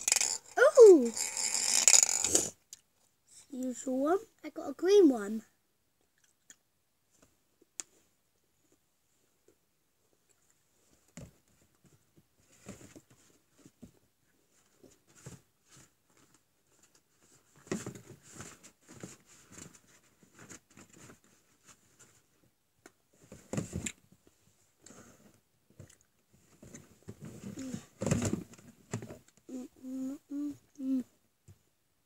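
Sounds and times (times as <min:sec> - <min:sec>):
objects rustling and knocking: 0:10.7 - 0:22.5, 0:23.1 - 0:29.4.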